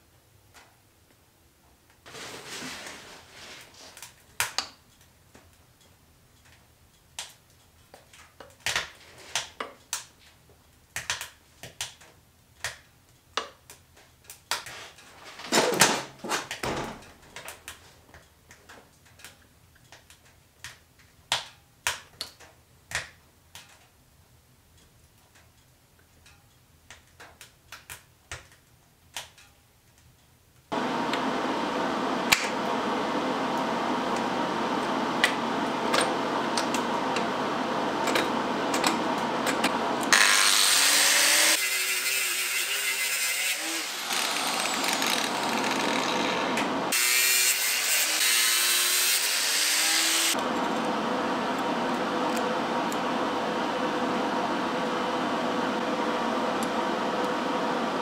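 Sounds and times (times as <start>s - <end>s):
angle grinder running: 35.4s - 50.4s
grinder disc cutting steel: 38.0s - 50.4s.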